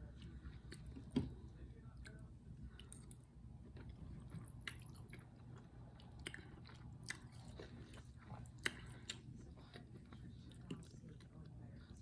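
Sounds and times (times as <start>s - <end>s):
low steady hum: 0.0s - 12.0s
person chewing: 1.9s - 11.5s.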